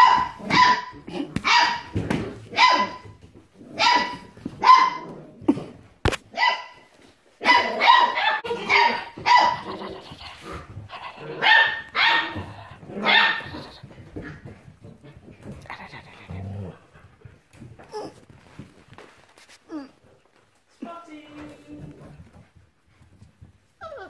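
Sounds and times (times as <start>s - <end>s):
puppies yapping: 7.4s - 13.8s.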